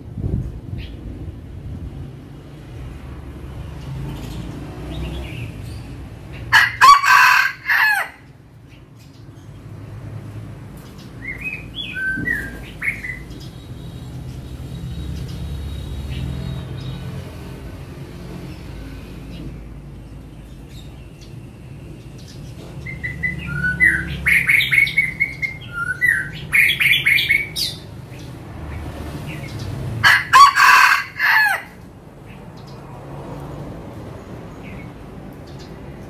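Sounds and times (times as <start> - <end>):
rooster crowing: 6.5 - 8.3, 30.0 - 31.8
high bird chirps: 10.8 - 17.0, 20.4 - 28.4.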